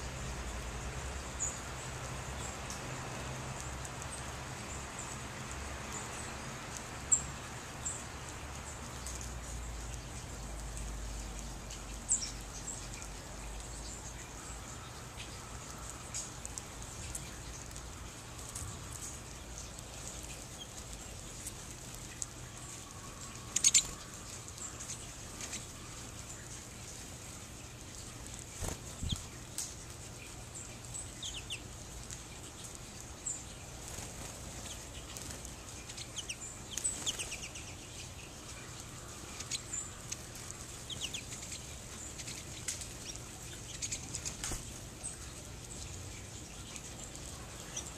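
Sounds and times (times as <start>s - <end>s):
steady low hiss: 0.0s - 47.9s
finches chirping: 11.1s - 26.6s, 27.8s - 47.9s.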